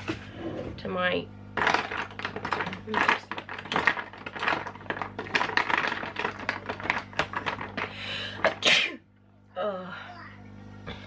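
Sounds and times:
packaging clicks and rustles: 0:01.6 - 0:08.6.

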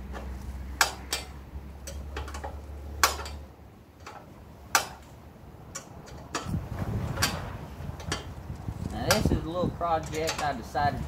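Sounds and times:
wrench clicking on metal bolts: 0:00.8 - 0:07.4, 0:08.0 - 0:08.4, 0:09.0 - 0:10.8.

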